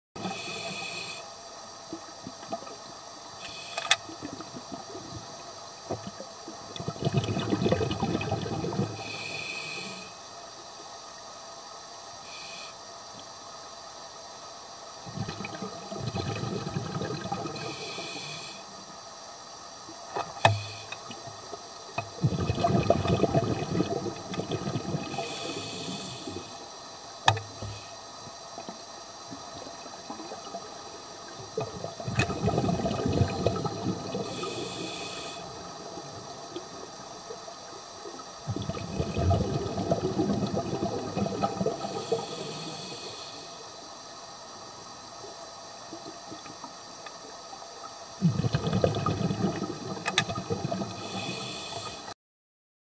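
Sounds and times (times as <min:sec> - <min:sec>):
regulator inhalation hiss: 0:00.2 - 0:01.8, 0:03.2 - 0:04.2, 0:09.0 - 0:10.8, 0:12.1 - 0:15.0, 0:17.4 - 0:19.7, 0:20.4 - 0:21.9, 0:25.0 - 0:28.4, 0:33.7 - 0:37.3, 0:41.6 - 0:44.5, 0:50.9 - 0:52.2
regulator exhaust bubbles underwater: 0:04.1 - 0:09.1, 0:15.0 - 0:17.8, 0:20.4 - 0:26.6, 0:29.3 - 0:34.9, 0:35.5 - 0:42.7, 0:48.2 - 0:51.9.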